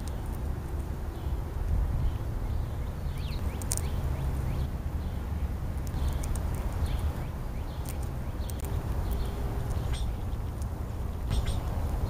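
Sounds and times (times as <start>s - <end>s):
small birds chirping: 0.0s - 12.0s
steady low rumble: 0.0s - 12.0s.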